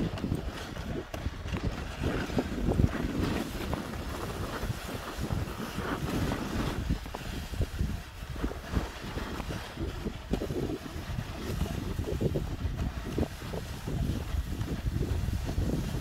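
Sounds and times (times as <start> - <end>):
sled scraping over snow: 0.0 - 16.0
wind buffeting microphone: 0.0 - 16.0.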